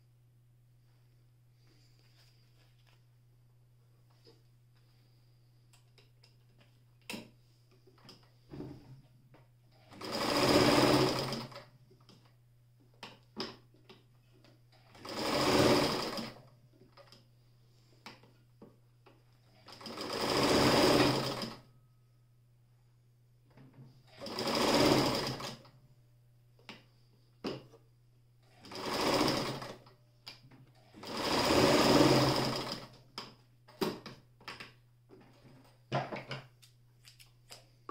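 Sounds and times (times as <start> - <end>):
electric sewing machine stitching: 9.8 - 11.6, 14.8 - 16.4, 19.6 - 21.7, 24.1 - 25.7, 28.5 - 29.9, 30.8 - 33.0.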